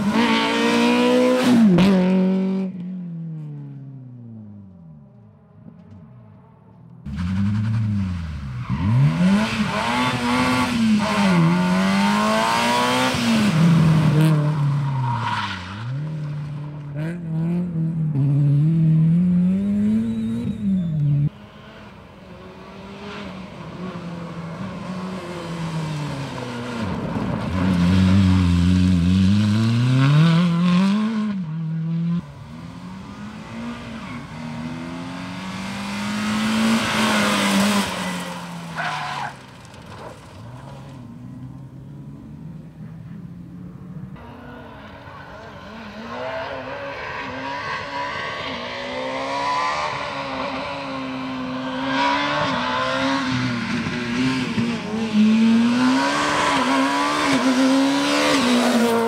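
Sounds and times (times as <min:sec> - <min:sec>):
rally car engines revving: 0:00.0 - 0:02.8, 0:07.0 - 0:59.0
tyre squeal: 0:37.9 - 0:40.1.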